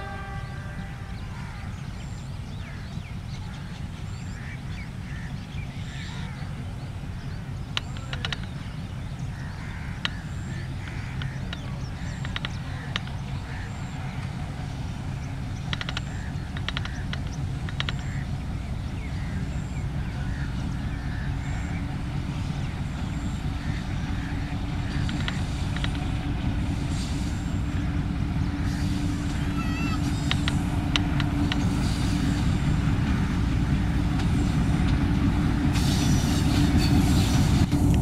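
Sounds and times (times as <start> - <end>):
bird calls: 0.0 - 37.3
diesel locomotive rumbling: 0.0 - 38.0
sharp clicks: 15.6 - 18.1, 30.2 - 31.7.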